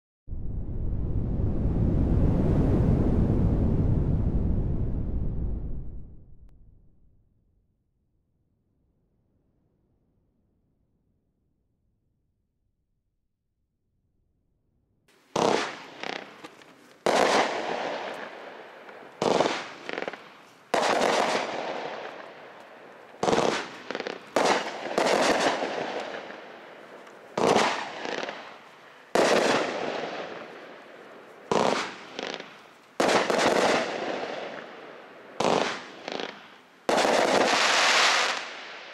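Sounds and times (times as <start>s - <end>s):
fireworks reports with rumble: 15.3s - 38.9s.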